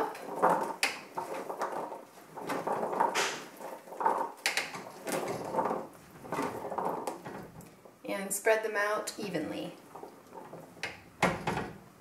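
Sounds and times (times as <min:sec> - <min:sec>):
chickpeas rustling and rolling: 0:00.0 - 0:08.0.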